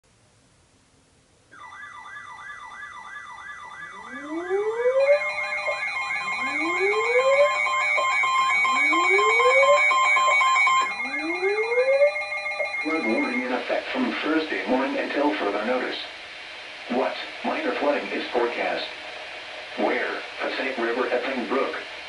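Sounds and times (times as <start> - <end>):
warbling siren: 1.5 - 13.6
steady alarm tones: 1.5 - 15.6
rising whoop alarm: 1.6 - 13.4.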